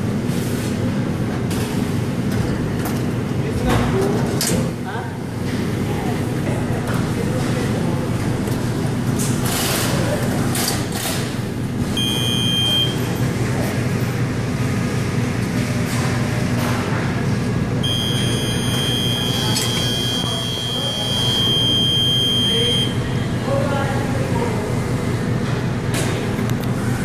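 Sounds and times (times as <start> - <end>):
machine hum: 5.1 - 27.0
high electronic buzzer: 12.0 - 13.1, 17.8 - 23.0.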